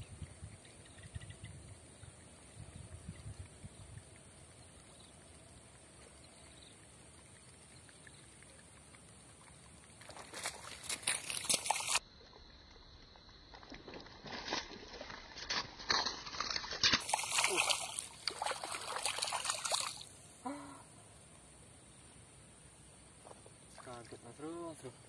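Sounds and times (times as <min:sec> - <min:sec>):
water splashing at surface: 0:07.0 - 0:12.0, 0:13.5 - 0:20.2.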